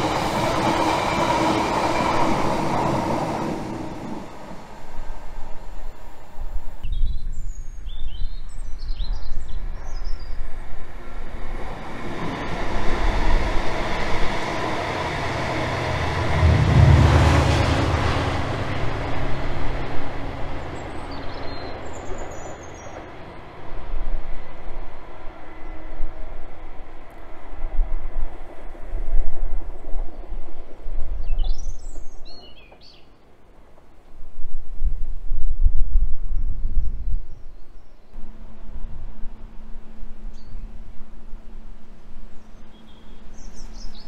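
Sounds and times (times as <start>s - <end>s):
diesel locomotive engine rumble: 0.0s - 7.0s, 9.6s - 27.6s.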